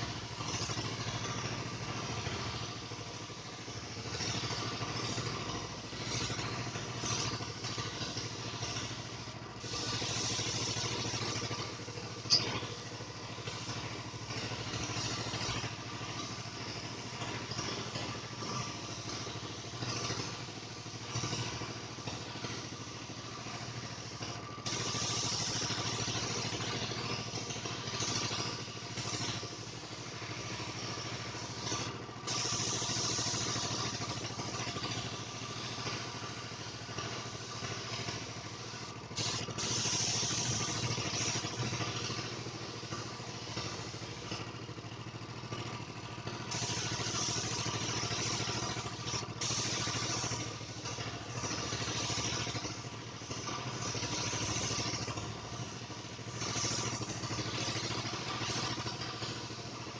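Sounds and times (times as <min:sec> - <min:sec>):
loud hissing: 0:00.0 - 0:44.8, 0:46.4 - 0:59.9.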